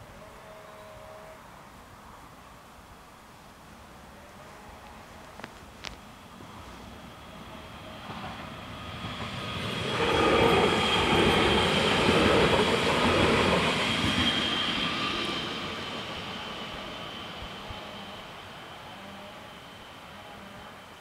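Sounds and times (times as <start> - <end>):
high whine: 5.4 - 21.0
electric train passing: 5.9 - 21.0.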